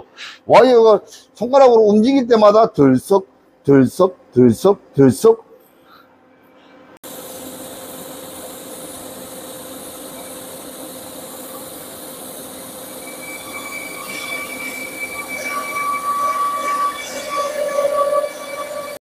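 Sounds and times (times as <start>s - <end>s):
high whine: 7.0s - 19.0s
welding arc hissing and humming: 7.0s - 19.0s.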